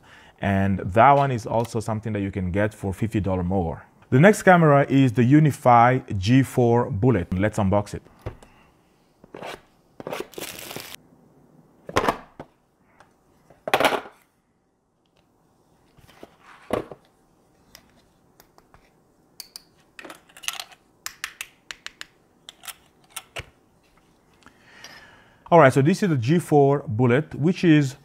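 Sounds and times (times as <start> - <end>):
packaging rustling: 10.2 - 11.0.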